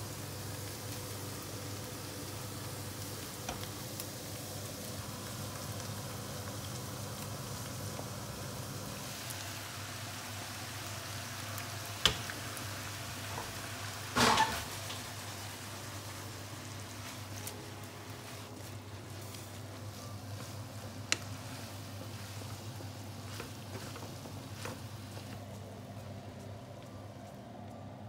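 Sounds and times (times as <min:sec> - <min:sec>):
boiling and frying hiss: 0:00.0 - 0:28.0
wok clattering: 0:14.1 - 0:15.2
faint hum: 0:14.8 - 0:28.0.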